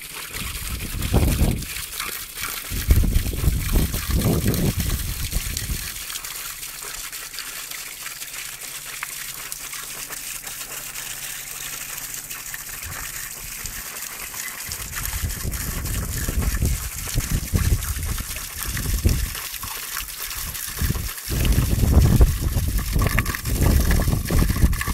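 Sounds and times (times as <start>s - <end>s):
water splattering onto rocks: 0.3s - 24.9s
low rumbling on microphone: 2.7s - 5.9s, 14.7s - 19.3s, 20.8s - 24.9s.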